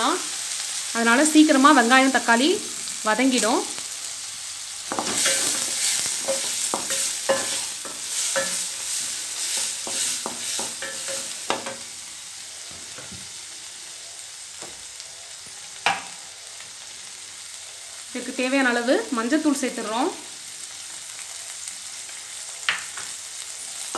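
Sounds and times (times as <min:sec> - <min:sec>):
onion and tomato sizzling in oil: 0:00.0 - 0:23.9
spatula scraping and knocking pan: 0:04.9 - 0:12.0.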